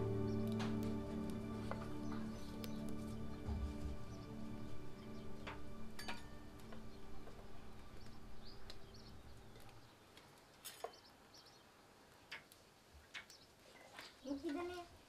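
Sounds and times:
background music: 0.0 - 9.9
birds chirping: 0.0 - 14.9
steel vessels clinking: 5.4 - 6.8.

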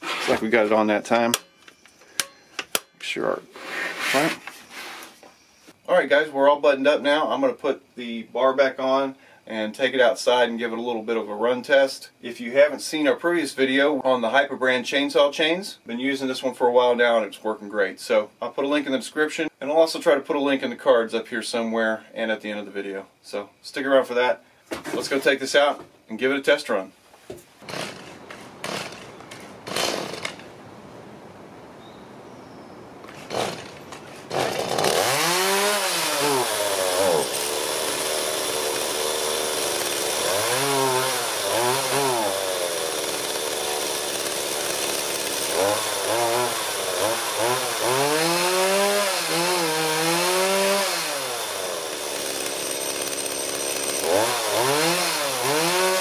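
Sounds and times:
chainsaw revving and idling: 27.6 - 30.5, 33.1 - 56.0.

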